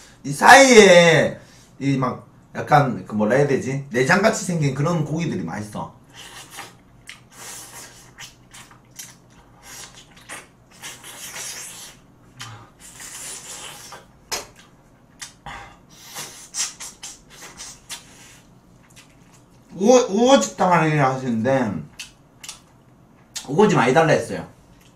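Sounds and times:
chewing and lip smacking: 0:06.2 - 0:15.4, 0:16.6 - 0:19.7, 0:21.9 - 0:23.5.

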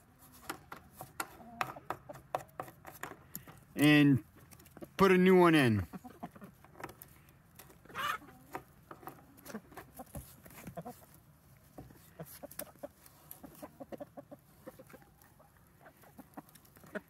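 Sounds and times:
chickens clucking softly: 0:00.3 - 0:02.5, 0:05.8 - 0:07.0, 0:07.6 - 0:17.0.

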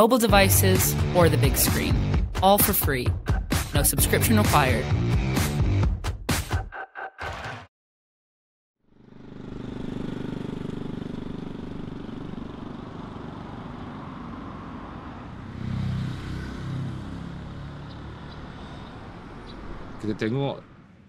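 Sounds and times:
loud vehicle rumble: 0:08.9 - 0:21.0
vehicle engines running: 0:08.9 - 0:21.0.

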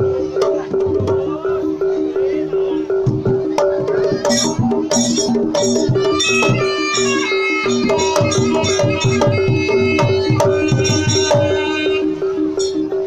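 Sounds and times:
gamelan music: 0:00.0 - 0:13.0
hand drum strokes with sliding pitch: 0:03.0 - 0:13.0.

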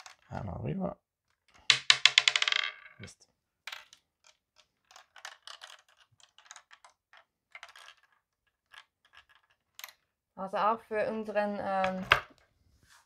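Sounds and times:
plastic maze clicks: 0:00.0 - 0:00.3, 0:01.3 - 0:02.8, 0:03.8 - 0:10.0
plastic ball bouncing on board: 0:01.6 - 0:02.9.

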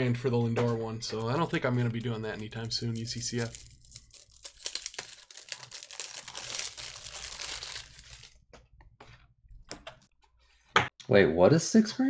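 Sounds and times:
plastic wrapping crinkling and tearing: 0:01.3 - 0:08.4.

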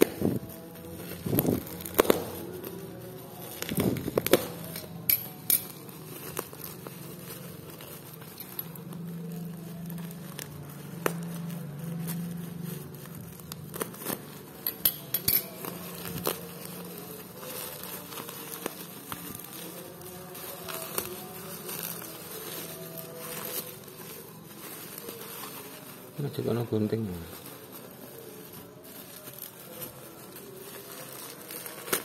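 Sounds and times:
parcel being opened: 0:03.6 - 0:06.1, 0:14.6 - 0:16.9.

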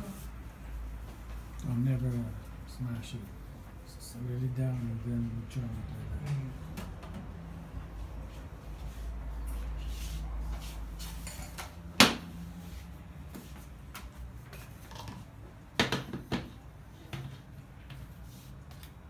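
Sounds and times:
knocks on kitchen worktop: 0:15.8 - 0:16.5.

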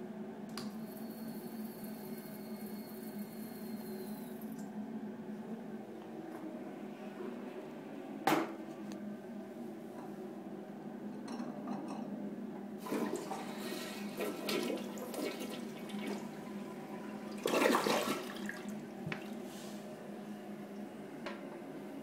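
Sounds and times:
toilet flushing: 0:12.8 - 0:19.9.

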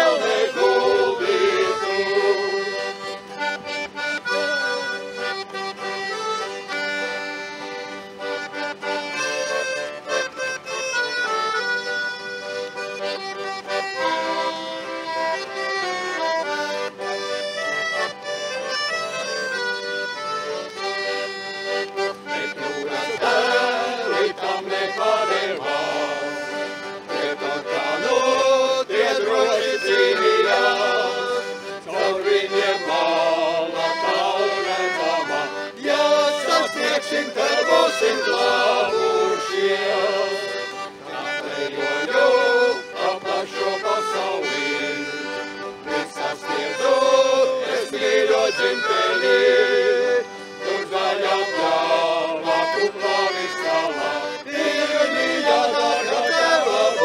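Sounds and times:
men singing: 0:00.0 - 0:02.9, 0:22.4 - 0:26.6, 0:27.2 - 0:45.3, 0:45.9 - 0:57.0
accordion playing folk tune: 0:00.0 - 0:57.0.

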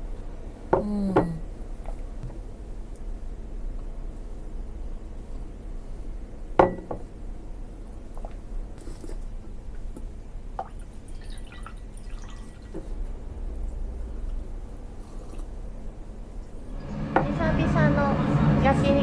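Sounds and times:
glass and pot clinking: 0:06.6 - 0:07.0
glass cup knocking on wooden table: 0:06.6 - 0:07.0
tea pouring and trickling: 0:10.7 - 0:12.8.

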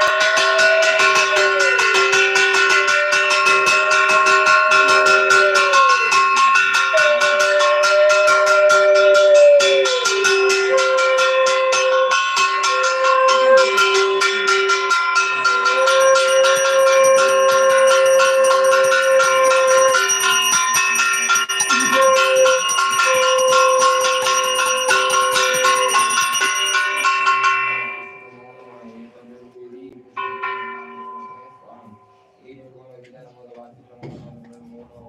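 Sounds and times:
long low held tone: 0:00.0 - 0:27.1
hand bell ringing rapidly: 0:00.0 - 0:28.4.

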